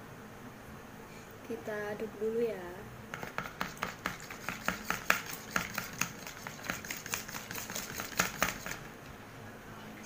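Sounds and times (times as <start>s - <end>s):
eggs beaten in plastic bowl: 3.1s - 9.0s.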